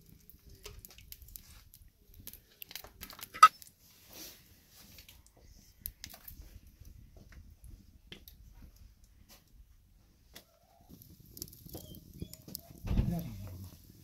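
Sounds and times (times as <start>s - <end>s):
butter crackling in pan: 10.5s - 12.9s.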